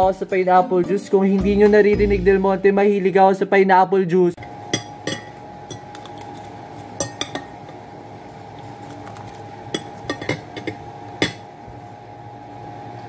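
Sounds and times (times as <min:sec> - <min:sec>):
steady hum: 0:02.3 - 0:13.0
fork clinking on plate: 0:04.8 - 0:05.9, 0:07.0 - 0:07.6, 0:09.7 - 0:11.4.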